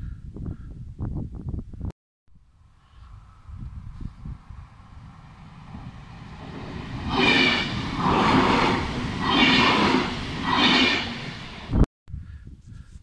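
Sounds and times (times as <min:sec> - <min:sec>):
electric train passing: 0:02.5 - 0:11.8.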